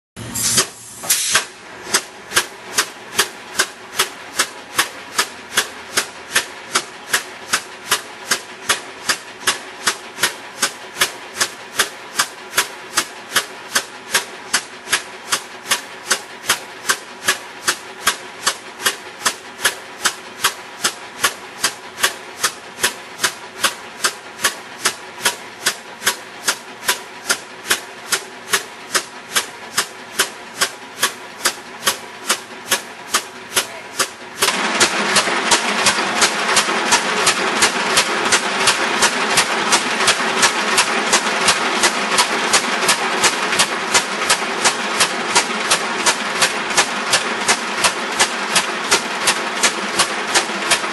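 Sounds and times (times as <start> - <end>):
air hissing: 0.2 - 1.6
piston engine exhaust blasts: 0.2 - 50.9.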